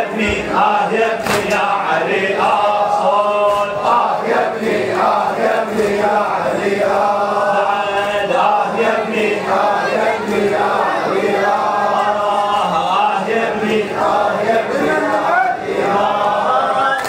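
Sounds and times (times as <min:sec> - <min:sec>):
men chanting a lament: 0:00.0 - 0:17.0
sharp slap: 0:01.2 - 0:01.7.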